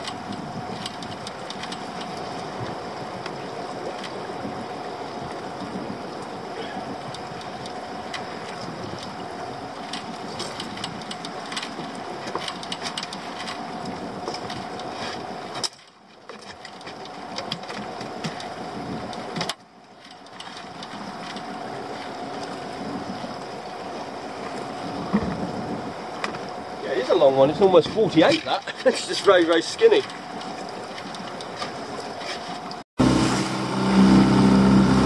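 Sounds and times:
handling clicks and knocks: 0.0 - 2.3, 9.8 - 22.5
outboard motor idling: 33.0 - 35.0.

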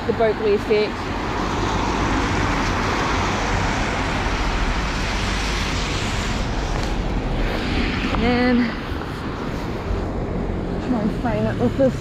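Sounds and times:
low traffic rumble: 0.0 - 12.0
tyres hissing on wet road: 0.5 - 12.0.

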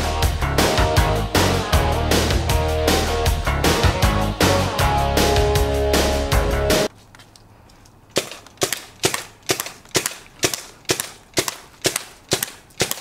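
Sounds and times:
paintball gun shots: 8.2 - 13.0.

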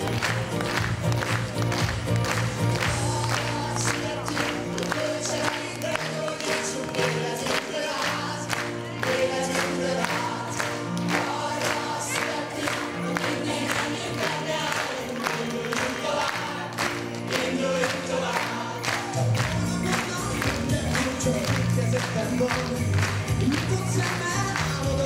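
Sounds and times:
song with steady beat: 0.0 - 25.0
children singing: 2.9 - 19.1.

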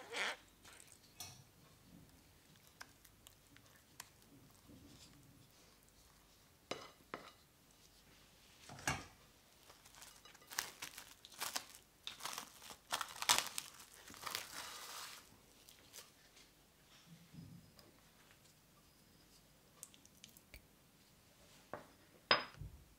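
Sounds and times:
cling wrap crinkling: 9.6 - 16.2
cling film ripping: 9.7 - 16.0.

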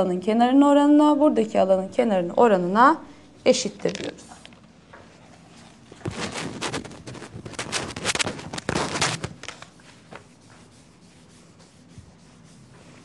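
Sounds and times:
eraser rubbing on chalkboard: 6.0 - 13.0.

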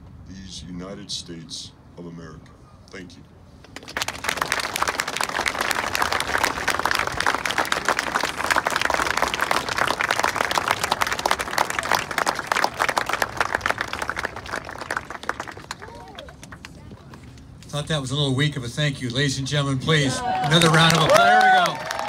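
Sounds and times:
crowd applauding: 3.8 - 16.8, 20.2 - 22.0.

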